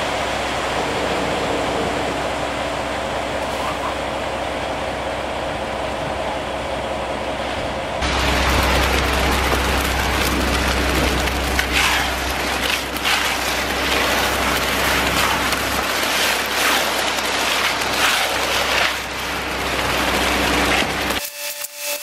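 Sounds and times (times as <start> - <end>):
truck engine running: 0.0 - 21.2
wet concrete pouring: 8.0 - 21.2
shovels scraping concrete: 10.2 - 21.2.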